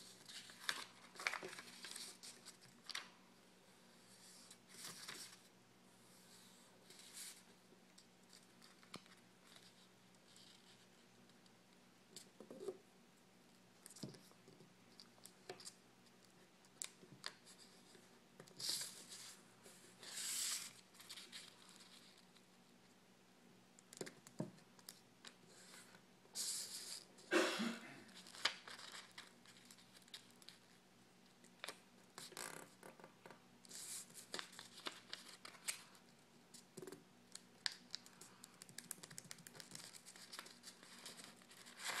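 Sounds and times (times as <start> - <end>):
paper rustling and crinkling: 0.1 - 3.2, 28.1 - 30.7, 33.7 - 36.0, 37.6 - 42.0.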